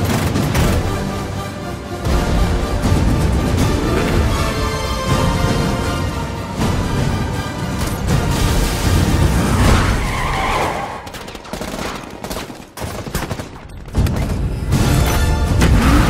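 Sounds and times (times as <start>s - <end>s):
rapid gunfire: 0.0s - 1.1s, 10.9s - 14.3s
car tyres skidding: 9.5s - 11.0s.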